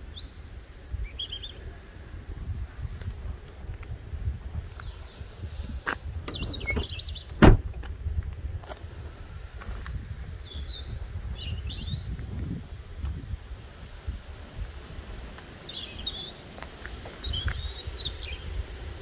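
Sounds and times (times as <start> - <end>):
small birds chirping: 0.0 - 1.8, 4.6 - 7.4, 9.9 - 12.2, 14.2 - 18.7
low rumbling noise: 1.0 - 16.2.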